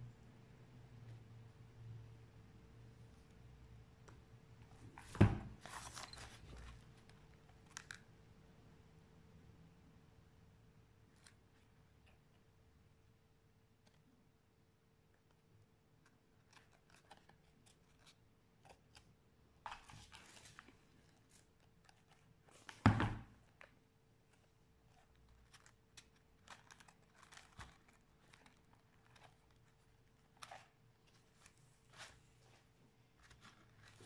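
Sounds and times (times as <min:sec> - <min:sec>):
thump on table: 0:05.0 - 0:05.6, 0:22.8 - 0:23.3.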